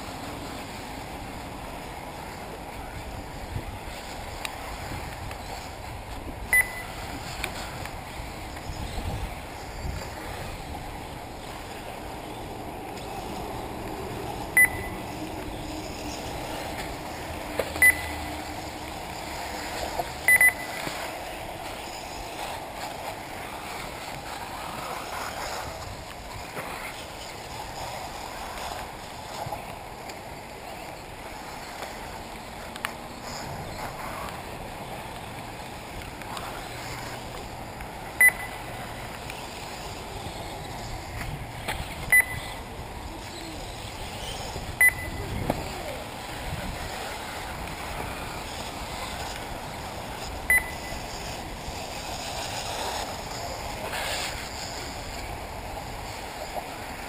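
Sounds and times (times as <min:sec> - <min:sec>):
electric rc cars humming: 0:00.0 - 0:57.0
short high electronic beeps: 0:06.5 - 0:07.0, 0:14.6 - 0:15.0, 0:17.8 - 0:18.2, 0:20.3 - 0:20.8, 0:38.2 - 0:38.6, 0:42.1 - 0:42.5, 0:44.8 - 0:45.3, 0:50.5 - 0:51.0.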